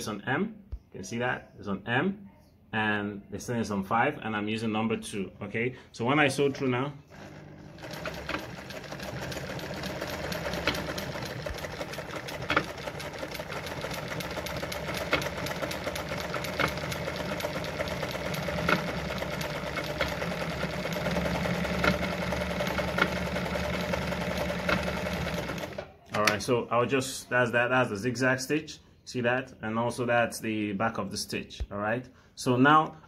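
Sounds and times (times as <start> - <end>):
sewing machine running: 6.3 - 26.3.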